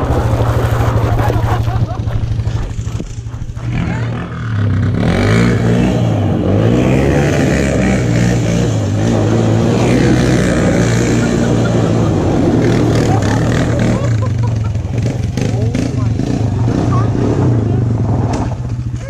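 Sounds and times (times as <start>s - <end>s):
tyres scrabbling on gravel: 0.0s - 3.6s
atv engine revving: 0.0s - 19.0s.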